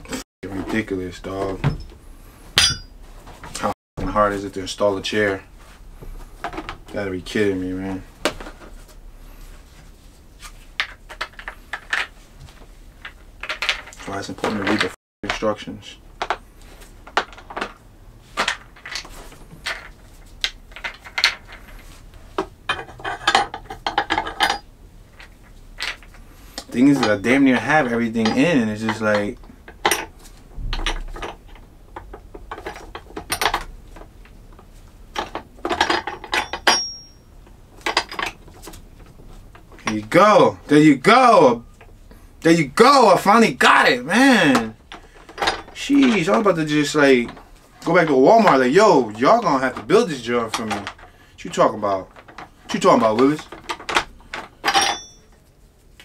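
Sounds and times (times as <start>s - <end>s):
chair parts clicking and knocking: 17.0s - 40.2s, 51.9s - 55.3s.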